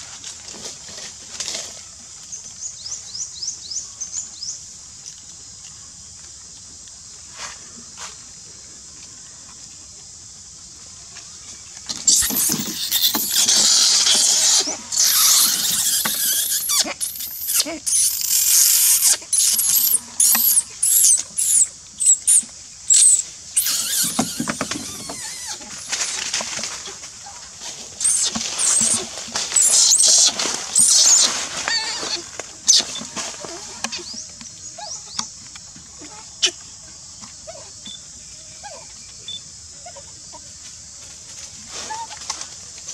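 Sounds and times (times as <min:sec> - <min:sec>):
baby monkey screaming: 0:12.1 - 0:26.2, 0:28.0 - 0:33.0.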